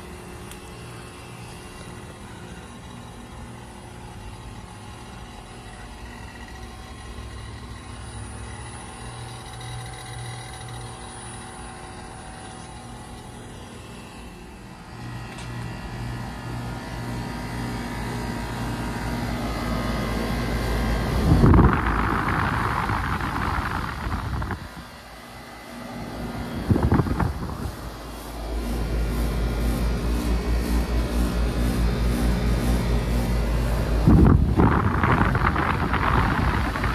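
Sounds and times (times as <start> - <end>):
condenser fan whirring: 0.0 - 36.9
heat pump humming: 0.0 - 36.9.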